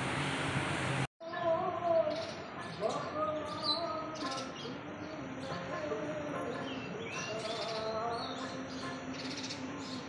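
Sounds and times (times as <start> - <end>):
small birds chirping: 1.2 - 10.0.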